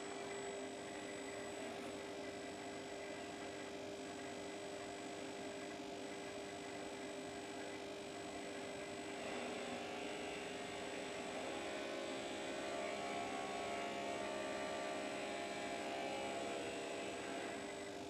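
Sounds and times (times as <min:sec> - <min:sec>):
bench grinder motor hum: 0:08.9 - 0:18.0.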